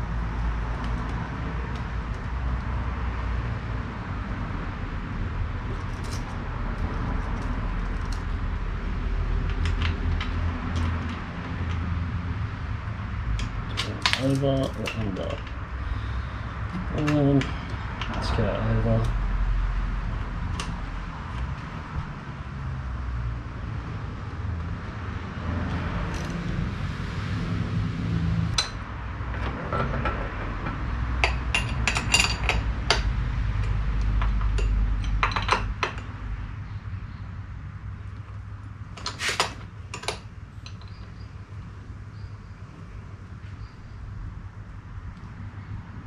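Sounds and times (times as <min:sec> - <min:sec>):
metal spanners clinking: 0:13.4 - 0:15.6, 0:31.2 - 0:36.1.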